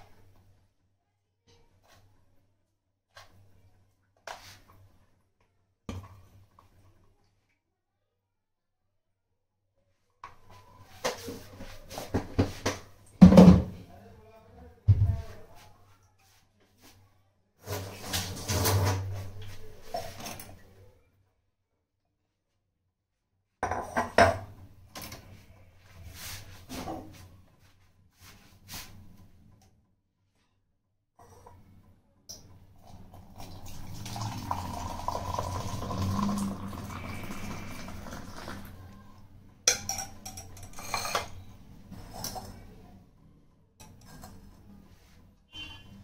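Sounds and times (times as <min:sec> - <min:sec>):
dishes and containers clinking: 0:23.6 - 0:25.2, 0:39.7 - 0:42.7
steel kitchenware clattering: 0:39.7 - 0:42.7.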